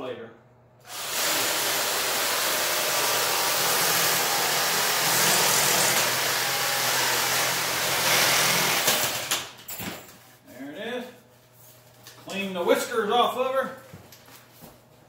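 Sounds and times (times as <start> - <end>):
reciprocating saw cutting pipe: 0.9 - 8.9.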